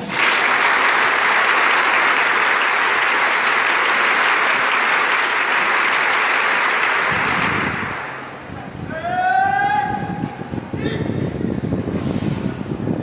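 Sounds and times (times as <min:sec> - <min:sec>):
large crowd applauding: 0:00.0 - 0:08.5.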